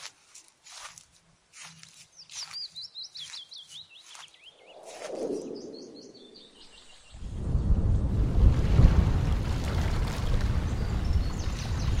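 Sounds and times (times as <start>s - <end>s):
footsteps crunching through vegetation: 0.0s - 5.6s
songbird chirping trill: 0.4s - 7.3s
rush of wind: 4.4s - 12.0s.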